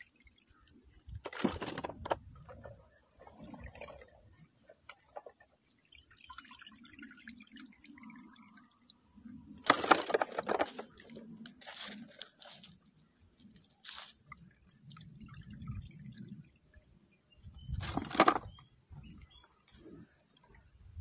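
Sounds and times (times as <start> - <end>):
water splashing in plastic tub: 1.1 - 4.2, 9.6 - 12.7, 17.8 - 18.6.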